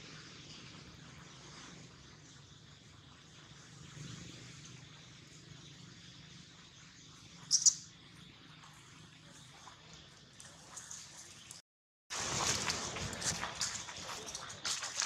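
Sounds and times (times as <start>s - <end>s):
sharp high-pitched double chirp: 7.5s - 7.8s.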